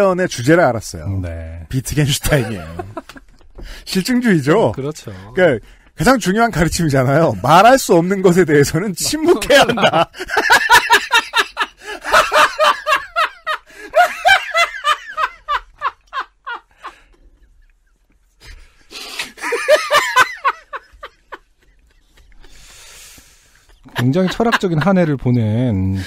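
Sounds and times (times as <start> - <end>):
hearty laughter: 2.2 - 3.6, 9.2 - 22.7, 23.6 - 25.2.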